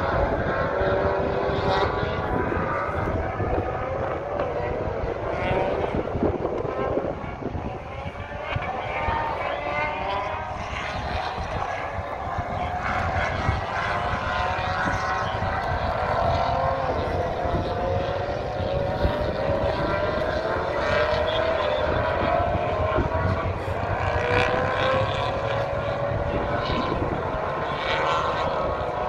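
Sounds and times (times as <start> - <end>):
distant race car engines droning: 0.0 - 29.0
wind buffeting microphone: 0.0 - 29.0.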